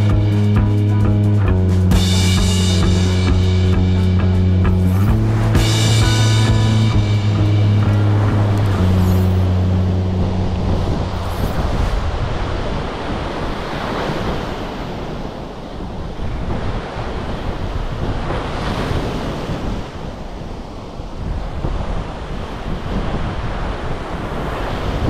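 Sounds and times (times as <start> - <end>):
wind buffeting microphone: 0.0 - 25.0
surf breaking on beach: 2.2 - 25.0.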